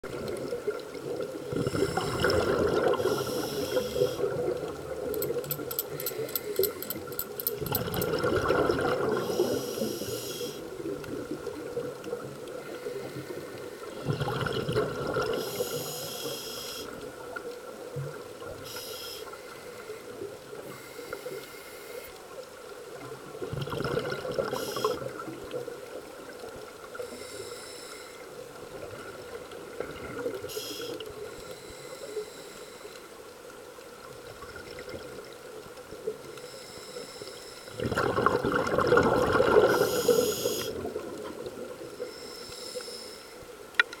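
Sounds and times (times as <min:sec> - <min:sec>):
exhaled bubbles bursting: 0:00.0 - 0:05.1, 0:07.6 - 0:09.6, 0:14.0 - 0:15.4, 0:23.4 - 0:25.3, 0:37.7 - 0:41.8
regulator hissing inhalations: 0:03.0 - 0:04.3, 0:09.2 - 0:10.7, 0:15.4 - 0:17.0, 0:18.6 - 0:19.9, 0:24.5 - 0:25.0, 0:27.1 - 0:28.2, 0:30.5 - 0:32.9, 0:39.7 - 0:40.8, 0:42.0 - 0:43.4.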